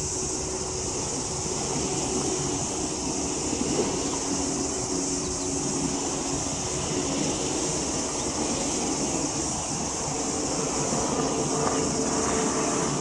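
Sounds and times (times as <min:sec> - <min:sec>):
steady high hiss: 0:00.0 - 0:13.0
water: 0:00.0 - 0:13.0
wind on microphone: 0:00.0 - 0:13.0.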